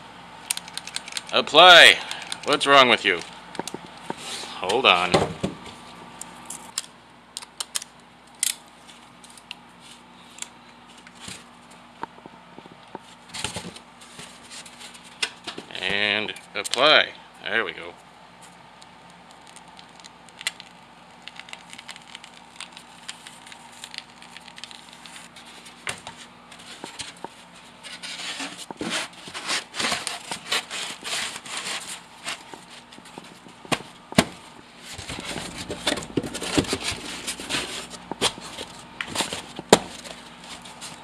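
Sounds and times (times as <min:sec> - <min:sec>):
insulation panel crackling and scraping: 0:21.2 - 0:41.0.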